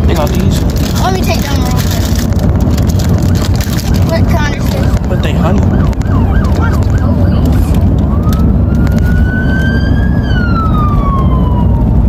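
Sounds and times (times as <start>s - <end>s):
road rumble: 0.0s - 12.0s
police siren yelp and wail: 3.0s - 12.0s.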